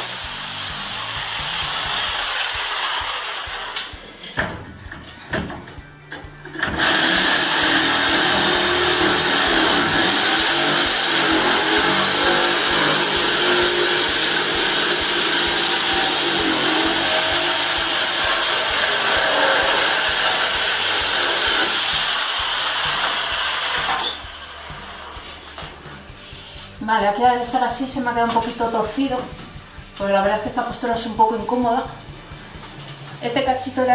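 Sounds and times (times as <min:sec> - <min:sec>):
jigsaw cutting plaster: 0:00.0 - 0:04.0, 0:06.6 - 0:24.4
vacuum drawing dust: 0:00.0 - 0:04.0, 0:06.7 - 0:25.6.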